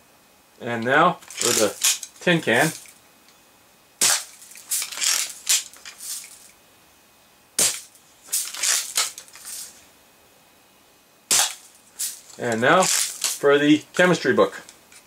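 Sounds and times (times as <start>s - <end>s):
gun mechanism clicks and rattles: 1.2s - 3.0s, 4.1s - 6.5s, 7.7s - 9.7s, 11.4s - 13.4s
bb gun shots: 4.0s - 5.8s, 7.6s - 9.2s, 11.3s - 11.7s.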